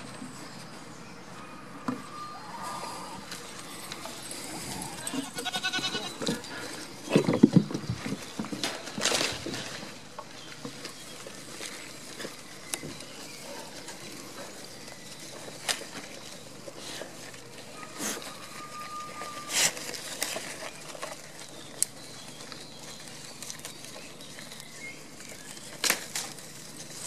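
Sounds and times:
goats bleating: 0:04.8 - 0:06.4.

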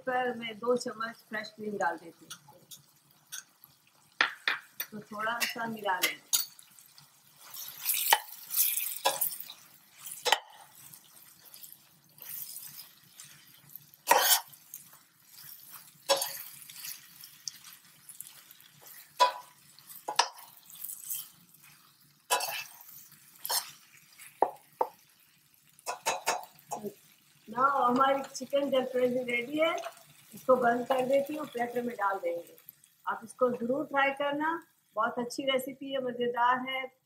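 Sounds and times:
metal spoon scraping a pan: 0:02.2 - 0:03.6, 0:04.7 - 0:25.1, 0:25.8 - 0:27.1, 0:27.9 - 0:31.8.

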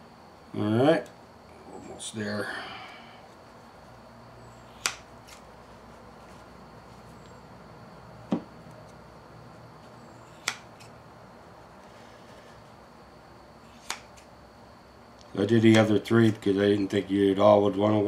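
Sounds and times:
faint low hum: 0:00.0 - 0:18.0
scissors snipping: 0:04.7 - 0:05.4, 0:10.4 - 0:10.9, 0:13.7 - 0:14.3.

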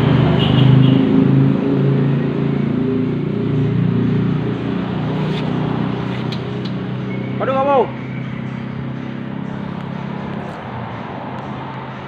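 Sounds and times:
motorcycle engine running: 0:08.0 - 0:10.9.

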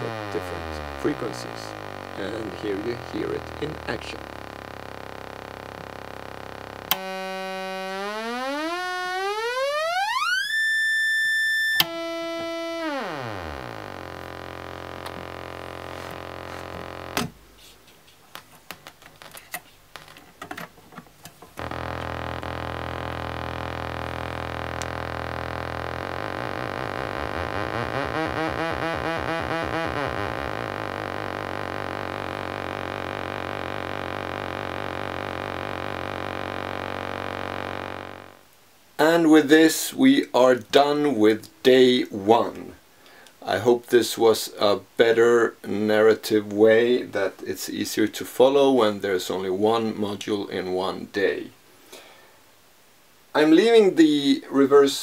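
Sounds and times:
irregular crackling clicks: 0:00.0 - 0:10.6, 0:11.7 - 0:17.4, 0:21.2 - 0:38.6
buzzing oscillator tone: 0:00.0 - 0:17.2, 0:21.6 - 0:38.4.

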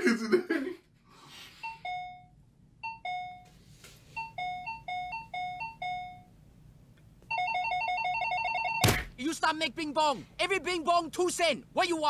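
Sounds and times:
two-note doorbell chime: 0:01.7 - 0:03.5, 0:04.2 - 0:06.3.

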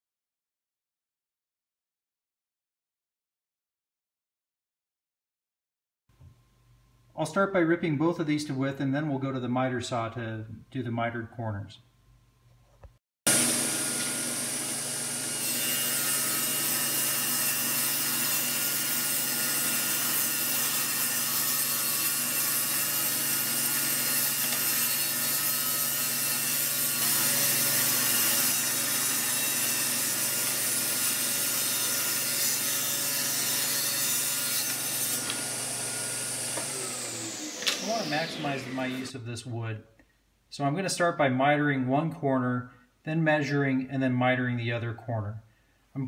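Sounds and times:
table saw cutting wood: 0:13.3 - 0:39.2.

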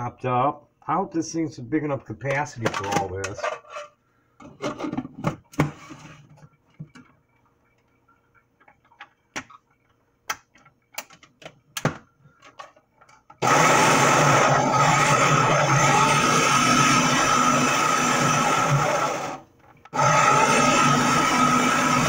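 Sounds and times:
food processor motor chopping: 0:13.4 - 0:22.0.

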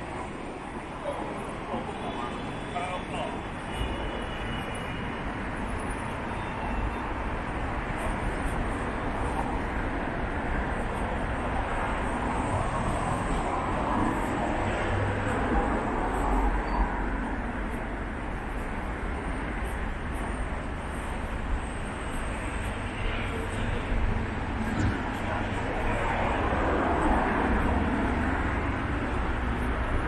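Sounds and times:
passing cars: 0:07.1 - 0:30.0.

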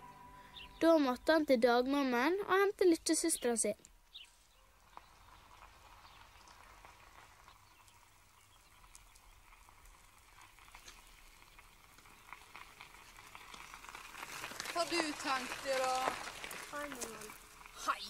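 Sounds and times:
faint ticks: 0:04.9 - 0:14.7.

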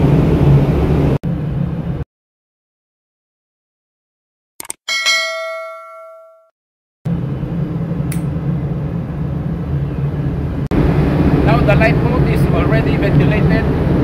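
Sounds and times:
bell-like ding: 0:04.9 - 0:06.6
machinery rumble: 0:07.1 - 0:14.0.

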